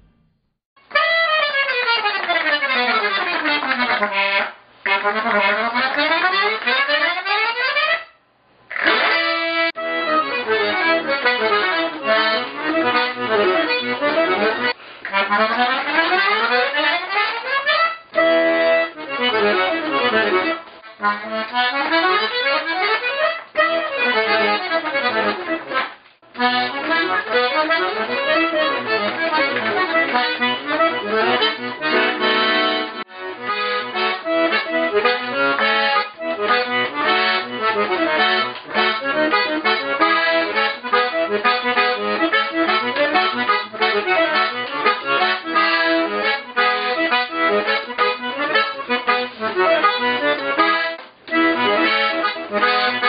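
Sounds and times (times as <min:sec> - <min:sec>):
accordion fast runs: 0:00.8 - 0:08.0, 0:08.7 - 0:53.0.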